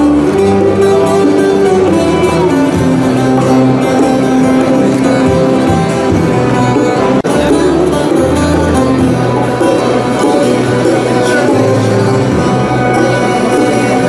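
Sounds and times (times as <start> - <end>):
instrumental music with held notes: 0.0 - 14.0.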